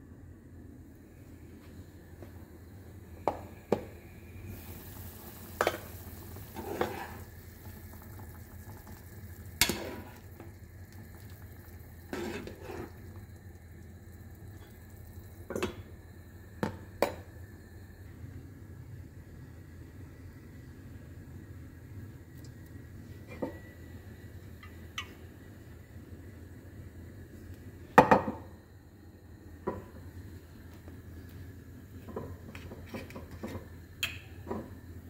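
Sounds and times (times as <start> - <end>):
chicken sizzling in oil: 4.5 - 16.3.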